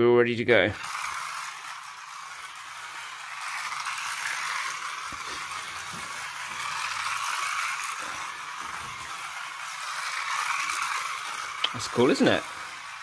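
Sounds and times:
toy car motor whirring: 0.2s - 13.0s.

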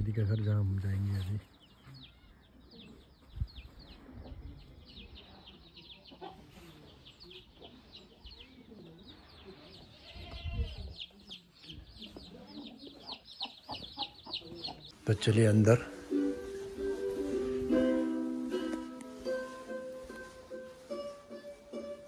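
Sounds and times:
chicks peeping: 1.2s - 15.5s.

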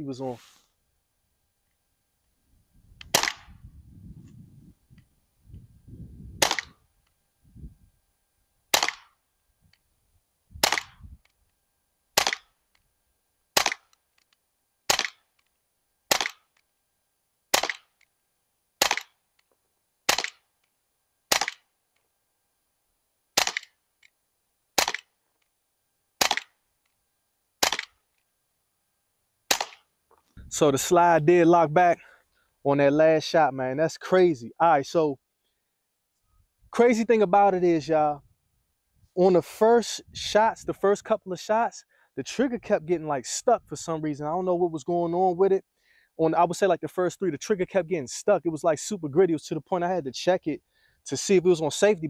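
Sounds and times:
air pistol pops: 3.0s - 3.6s, 6.4s - 6.8s, 8.7s - 9.1s, 10.6s - 11.4s, 12.2s - 12.5s, 13.6s - 14.3s, 14.9s - 15.5s, 16.1s - 16.6s, 17.5s - 18.0s, 18.8s - 19.2s, 20.1s - 20.4s, 21.3s - 21.6s, 23.4s - 23.7s, 24.8s - 25.1s, 26.2s - 26.6s, 27.6s - 28.0s, 29.5s - 29.8s.

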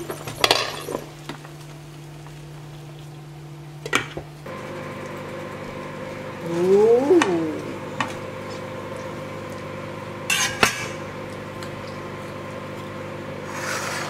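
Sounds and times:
low steady hum: 1.8s - 13.3s
faint bubbling: 6.4s - 8.4s.

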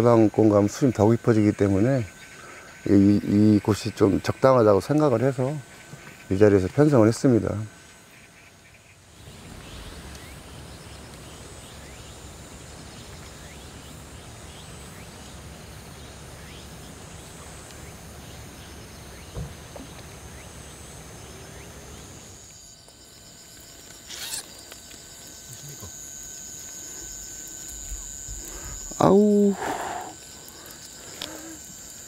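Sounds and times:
high insect drone: 0.0s - 32.0s.

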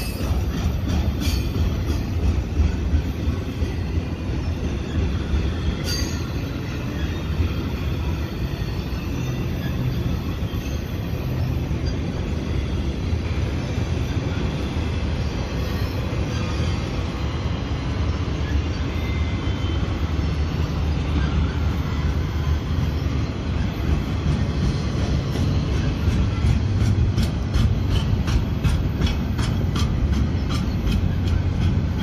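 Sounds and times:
freight train wheels rumbling on rail: 0.0s - 32.0s.

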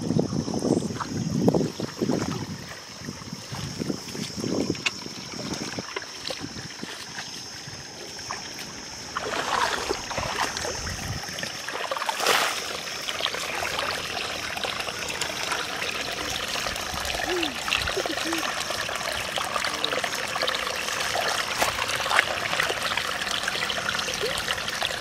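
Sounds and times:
muddy water trickling and splashing: 0.3s - 25.0s
loud water splash: 9.1s - 18.6s.

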